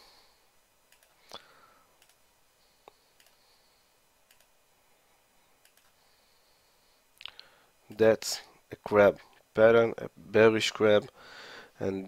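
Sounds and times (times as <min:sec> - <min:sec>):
computer mouse clicks: 0:00.9 - 0:01.2, 0:02.0 - 0:02.2, 0:02.9 - 0:03.4, 0:04.3 - 0:04.5, 0:05.6 - 0:06.0.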